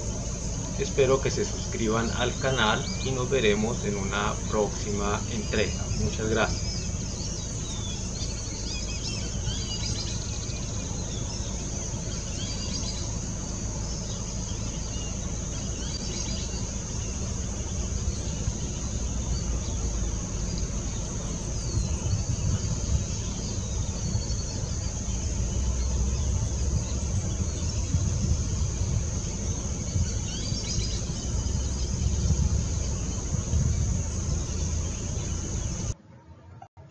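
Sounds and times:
bird chirps: 0.0s - 36.0s
high-pitched insect drone: 0.0s - 36.0s
low rumble: 0.0s - 36.0s.

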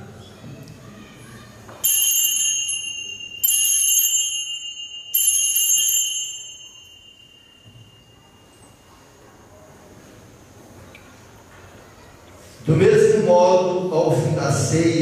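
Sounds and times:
altar bells jingling: 1.8s - 9.5s.

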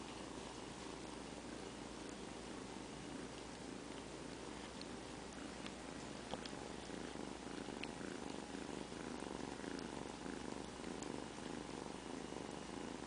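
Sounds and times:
kitten purring: 0.0s - 13.0s
faint clicks: 3.3s - 8.4s.

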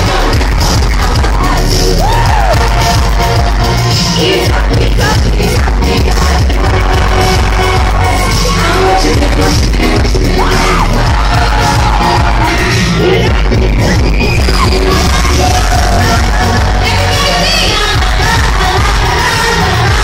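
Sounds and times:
backing track with heavy bass: 0.0s - 20.0s
group singing pop song: 0.0s - 20.0s.

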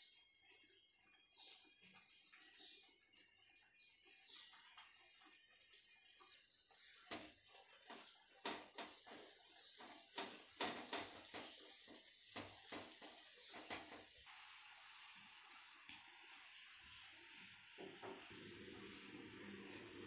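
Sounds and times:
food sizzling on a pan: 0.0s - 20.0s
spatula scraping and tapping pan: 3.8s - 14.2s.

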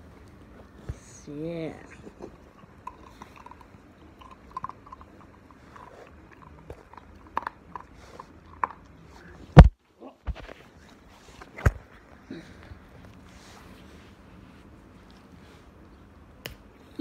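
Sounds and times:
puppy chewing a treat: 2.1s - 9.6s.

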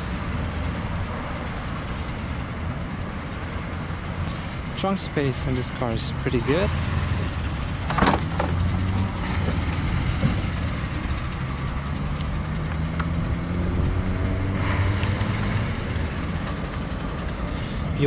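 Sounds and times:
engine idling hum: 0.0s - 18.0s
trunk latch clunk: 7.8s - 8.6s.

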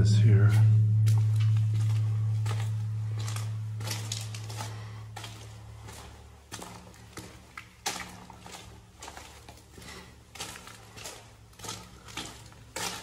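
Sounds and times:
footsteps crunching on gravel: 0.4s - 13.0s.

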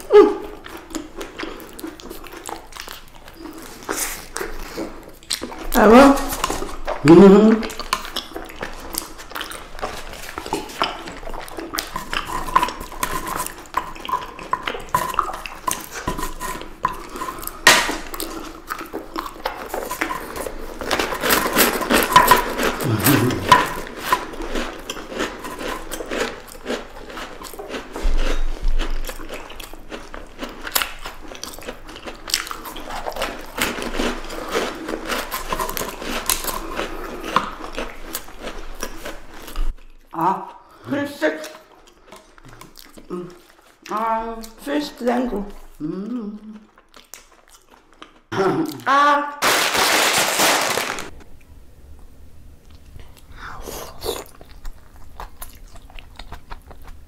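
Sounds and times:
person humming: 0.0s - 0.6s, 7.0s - 7.6s, 22.8s - 23.8s, 43.1s - 43.4s, 45.8s - 46.6s, 48.3s - 49.3s
teeth crunching frozen ice cream: 0.0s - 40.7s, 45.6s - 48.8s, 52.7s - 57.0s
wet chewing: 0.0s - 48.8s, 52.6s - 57.0s.

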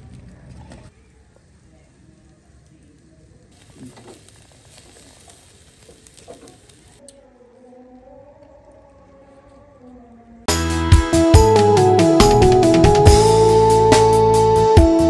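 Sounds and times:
wood bonfire crackling: 0.0s - 7.0s
meat sizzling over charcoal: 0.9s - 7.0s.

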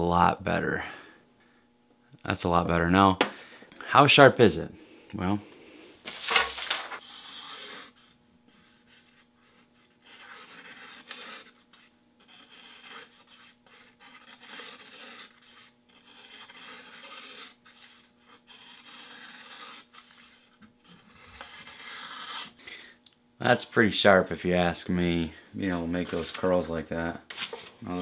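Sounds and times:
knife slicing paper: 6.1s - 22.6s.

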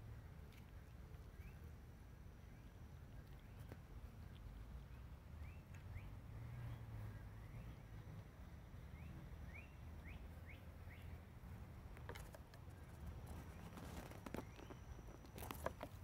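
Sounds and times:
bird chirping: 0.6s - 1.7s, 2.4s - 11.2s, 12.2s - 16.0s
twigs and leaves crackling: 11.9s - 16.0s.

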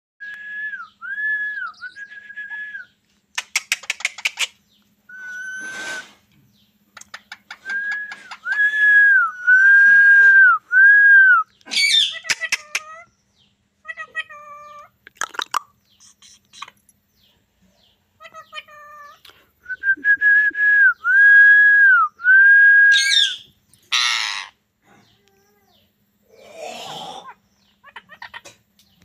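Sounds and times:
parakeet whistling: 5.1s - 6.1s, 22.9s - 23.5s.

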